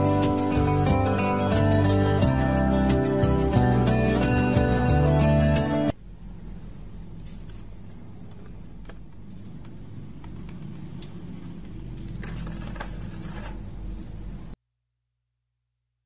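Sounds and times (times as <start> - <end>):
low background hum: 5.9 - 14.6.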